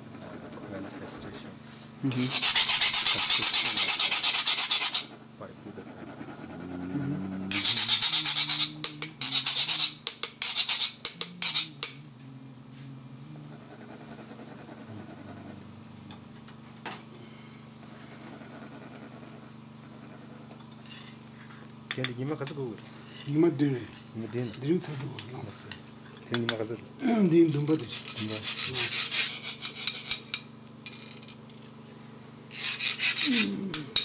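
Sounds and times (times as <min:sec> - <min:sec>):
metal scraper rasping on metal cone: 0:02.1 - 0:05.2, 0:07.5 - 0:12.0, 0:27.5 - 0:31.2, 0:32.5 - 0:34.0.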